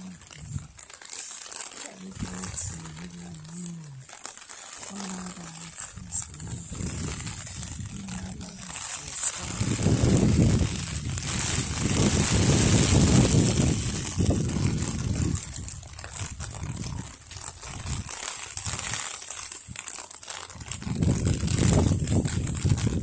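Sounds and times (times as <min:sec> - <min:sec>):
rumbling on microphone: 0:00.0 - 0:00.8, 0:04.9 - 0:19.1, 0:20.5 - 0:23.0.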